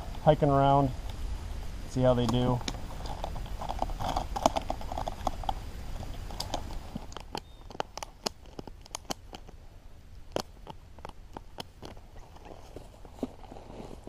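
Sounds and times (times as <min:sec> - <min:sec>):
buckles and straps clicking: 0:02.3 - 0:09.6, 0:10.3 - 0:14.0.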